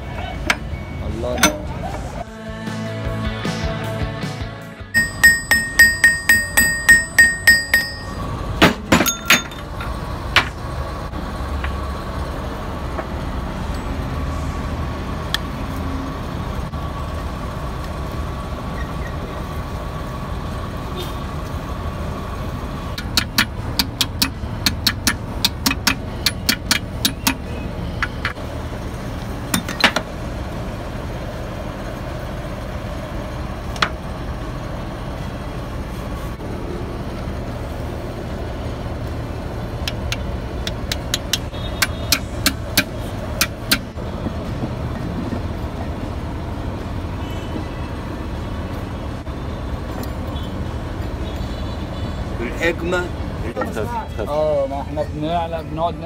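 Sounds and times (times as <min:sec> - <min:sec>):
workshop hum: 0:00.0 - 0:02.4, 0:05.0 - 0:51.2
hammer striking metal: 0:05.0 - 0:09.7, 0:23.0 - 0:27.4, 0:40.7 - 0:44.0
metallic clicks and clinks: 0:09.0 - 0:09.9.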